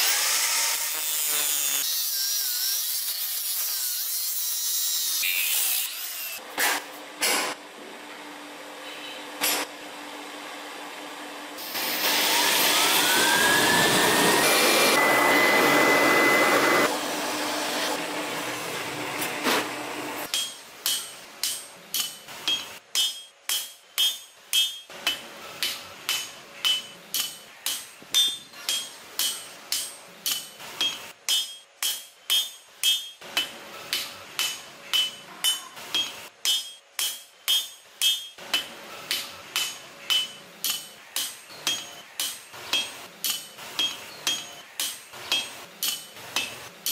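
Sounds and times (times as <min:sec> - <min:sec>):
hammer striking steel on anvil: 0:20.2 - 0:46.9.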